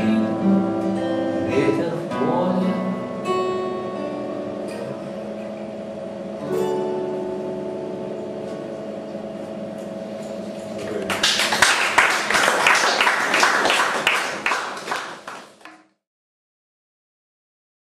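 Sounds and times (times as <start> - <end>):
acoustic guitar chord ringing: 0.0 - 10.8
audience applauding: 10.9 - 15.7.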